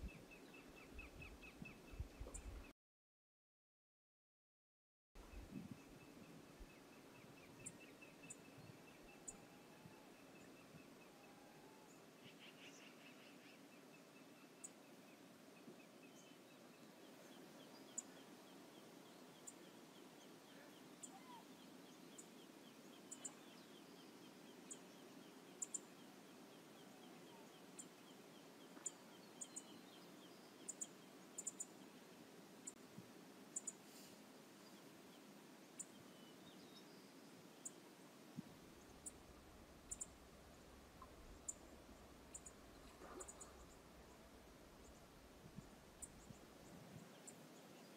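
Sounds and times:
steady low hiss: 0.0 - 2.7, 5.2 - 47.9
faint trilling bird call: 21.0 - 21.5.

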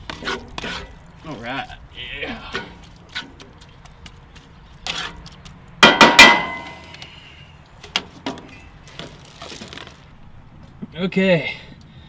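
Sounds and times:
spatula scraping skillet: 0.0 - 1.5, 4.4 - 5.3
spatula clanging on skillet: 5.8 - 6.9.

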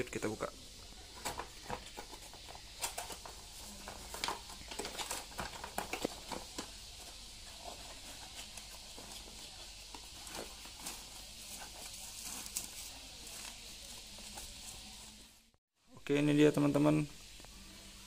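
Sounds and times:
rustles and scrapes of packing: 1.1 - 15.3.

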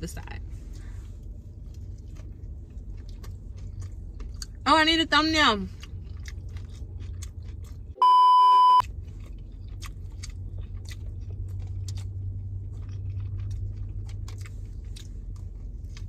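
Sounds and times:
low steady hum: 0.0 - 16.0
chewing with wet mouth clicks: 1.5 - 4.6, 5.7 - 8.0, 8.8 - 16.0
censor bleep tone: 8.0 - 8.8.

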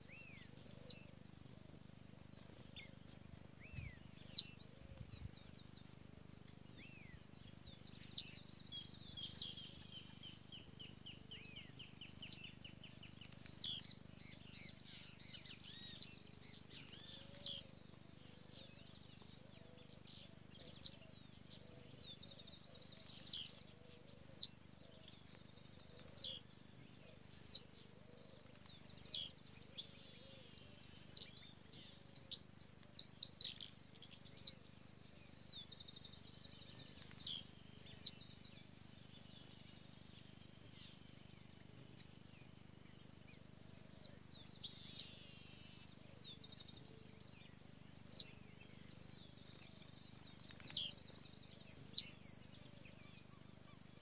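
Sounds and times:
songbirds calling: 0.0 - 54.0
bird trills: 25.7 - 26.4, 36.1 - 38.2, 50.1 - 51.0.

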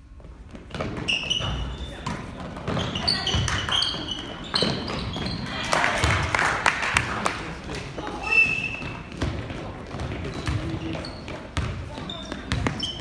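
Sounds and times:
sneakers squeaking: 0.1 - 6.2, 7.9 - 13.0
basketball bouncing on hardwood floor: 0.5 - 3.6, 8.8 - 13.0
spectators' voices: 3.0 - 8.6.

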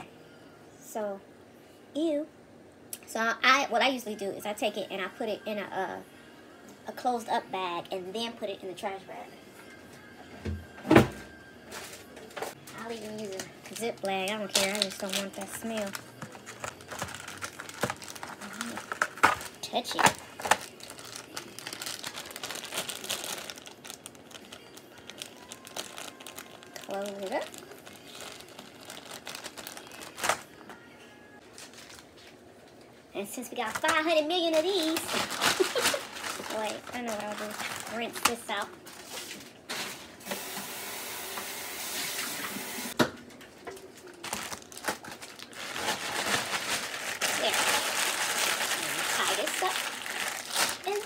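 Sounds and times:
plastic bag crinkling: 12.6 - 30.5, 33.6 - 39.9, 43.8 - 51.0
tap water running: 40.2 - 42.9.

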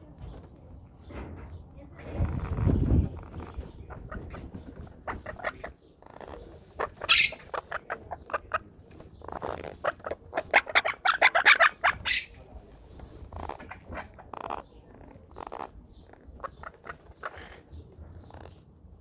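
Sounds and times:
parakeet harsh chirps: 5.0 - 8.6, 9.3 - 12.4.

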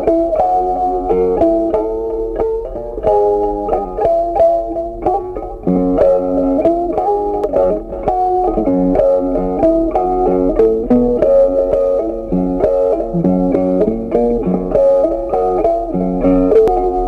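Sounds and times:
plucked guitar tune: 0.0 - 17.0
bass line: 12.9 - 14.4.

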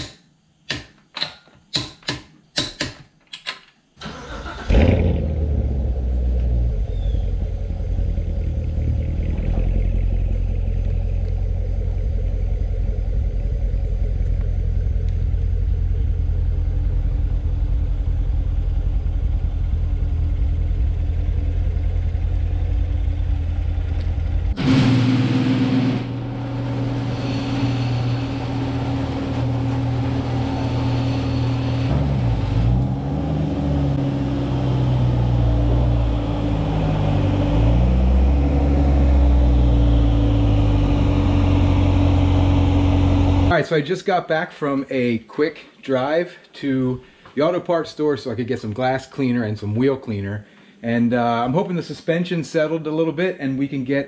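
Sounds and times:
car engine starting and idling: 4.0 - 43.6.

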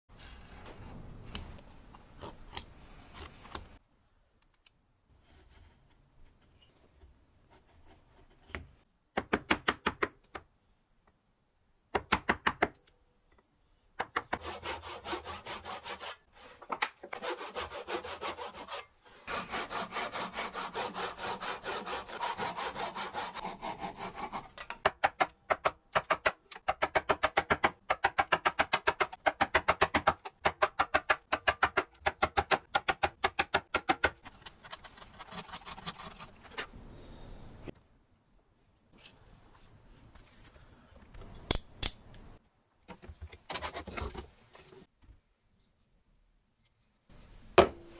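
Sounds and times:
chisel strokes: 14.2 - 25.0
hand saw cutting wood: 14.4 - 16.5, 17.1 - 24.9.

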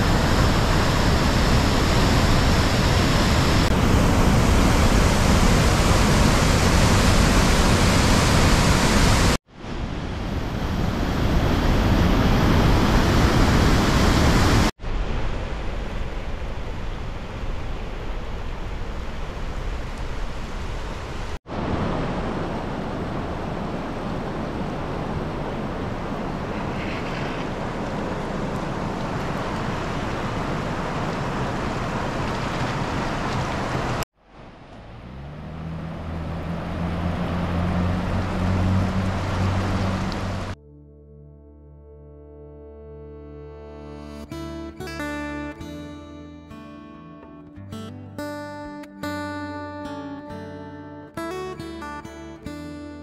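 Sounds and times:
floodwater rushing over falls: 0.0 - 40.6.

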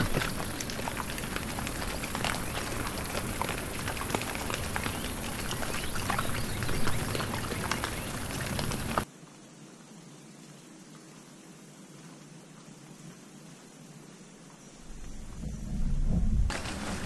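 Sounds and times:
hogs crunching while feeding: 0.0 - 9.0
steady hiss: 0.0 - 17.0.

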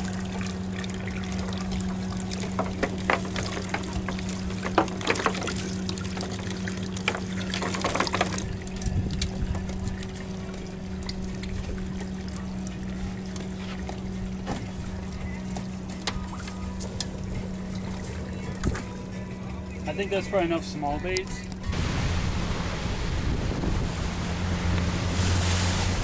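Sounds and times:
water pouring and dripping: 0.0 - 19.2
steady low hum: 0.0 - 26.0
clicks and rattles: 2.4 - 9.8.

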